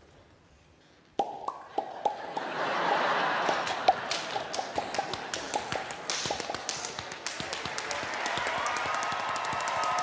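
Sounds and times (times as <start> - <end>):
hands slapping thighs and boots: 3.4 - 10.0.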